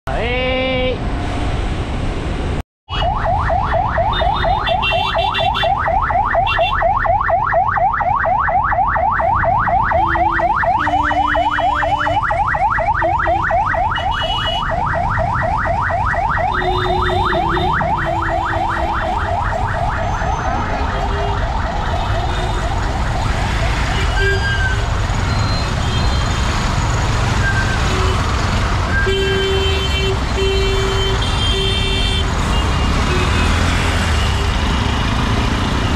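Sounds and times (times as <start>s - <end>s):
traffic rumble: 0.1s - 35.9s
electronic siren yelping: 2.9s - 26.4s
vehicle horns: 4.1s - 5.8s, 9.9s - 12.4s, 13.0s - 14.8s, 16.4s - 19.2s, 23.4s - 34.9s.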